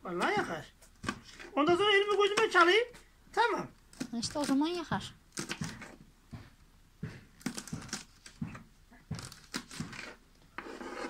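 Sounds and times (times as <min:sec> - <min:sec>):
knife chopping on wooden board: 0:00.2 - 0:02.7, 0:05.4 - 0:11.0.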